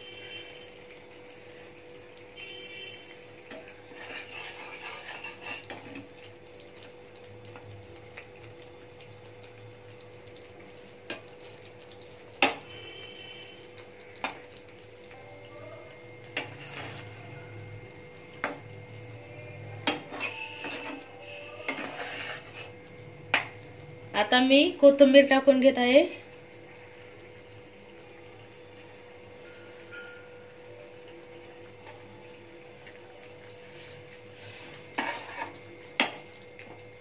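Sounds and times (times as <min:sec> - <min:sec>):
gravy sizzling: 0:00.0 - 0:37.0
metal spatula scraping pan: 0:03.5 - 0:06.1, 0:16.4 - 0:17.2, 0:19.8 - 0:22.8, 0:33.8 - 0:35.6
faint steady hum: 0:05.7 - 0:37.0.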